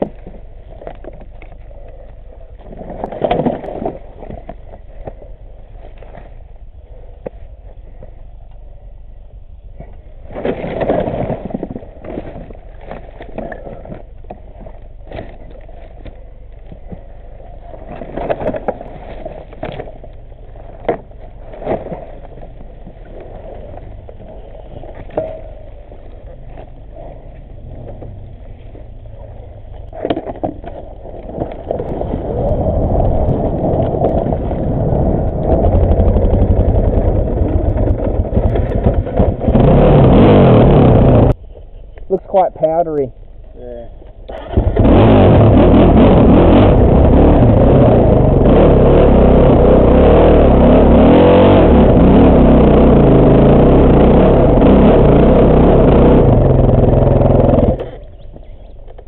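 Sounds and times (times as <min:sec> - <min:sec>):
dirt bike engine running: 0:32.9 - 0:41.4, 0:44.3 - 0:58.8.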